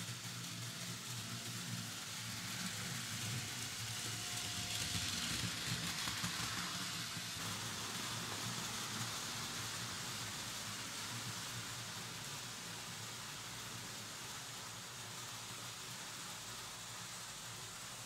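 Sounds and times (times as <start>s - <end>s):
model train wheels rattling: 0.0s - 9.8s.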